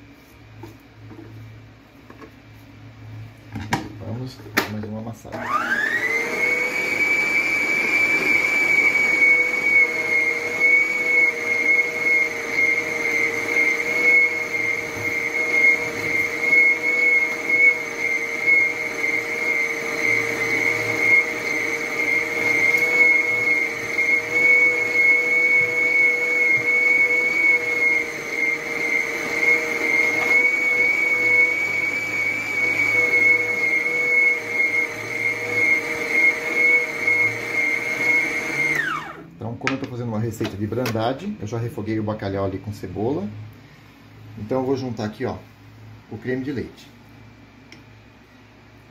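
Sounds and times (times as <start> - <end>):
stand mixer motor whining: 5.3 - 39.3.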